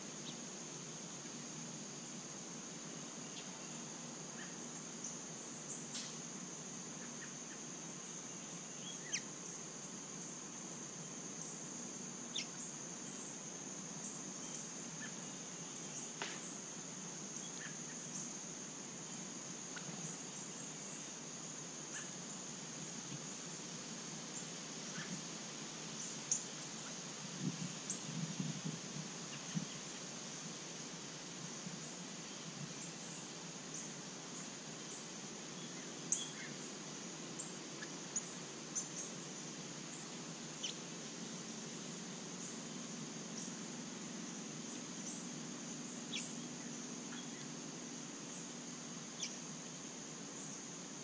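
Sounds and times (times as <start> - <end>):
high-pitched insect drone: 24.3 - 51.0.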